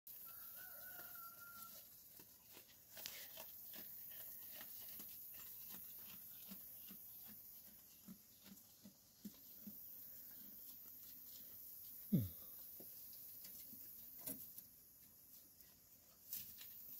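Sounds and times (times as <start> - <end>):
rooster crowing: 0.1 - 2.0.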